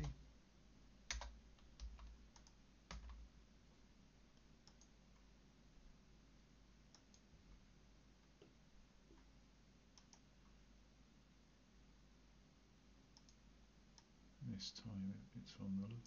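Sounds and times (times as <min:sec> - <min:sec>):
low hiss: 0:00.0 - 0:16.0
mouse clicks: 0:01.1 - 0:03.1, 0:04.4 - 0:05.0, 0:06.9 - 0:07.3, 0:10.0 - 0:10.3, 0:13.2 - 0:13.4
keyboard keystrokes: 0:01.1 - 0:03.2.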